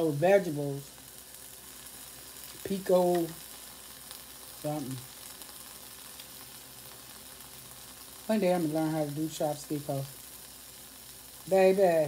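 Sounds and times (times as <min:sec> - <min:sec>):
woman's voice: 0:00.0 - 0:00.9, 0:02.6 - 0:03.4, 0:04.6 - 0:05.1, 0:08.3 - 0:10.1, 0:11.5 - 0:12.0
food sizzling on grill: 0:00.0 - 0:12.0.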